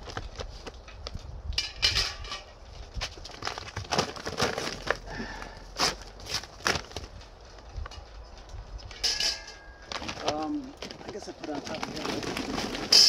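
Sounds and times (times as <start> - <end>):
grill parts knocking and clattering: 0.9 - 5.0, 8.8 - 13.0.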